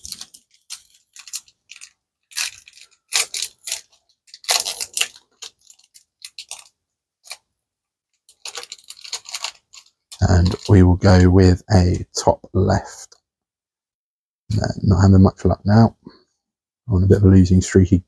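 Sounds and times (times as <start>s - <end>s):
foil wrapper crinkling and tearing: 0.0s - 7.5s, 8.2s - 11.2s.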